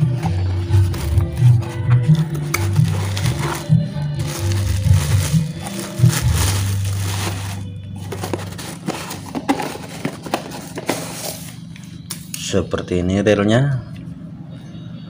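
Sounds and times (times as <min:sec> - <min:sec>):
background music with bass line: 0:00.0 - 0:11.6
plastic wrapping crinkling: 0:00.6 - 0:11.6
cardboard box being handled: 0:02.8 - 0:11.3.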